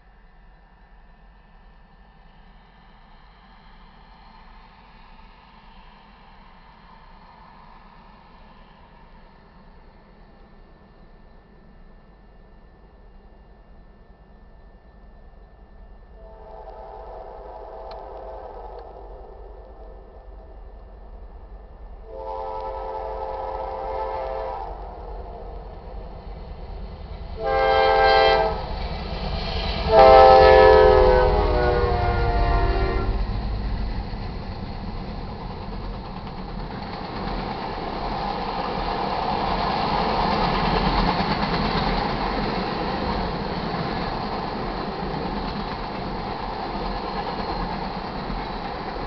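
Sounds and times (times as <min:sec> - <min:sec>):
diesel engine of passing train: 0:00.0 - 0:49.0
locomotive air horn blasts: 0:16.2 - 0:18.7, 0:22.0 - 0:24.8, 0:27.4 - 0:28.6, 0:29.9 - 0:33.2
wheels on rails: 0:31.7 - 0:49.0.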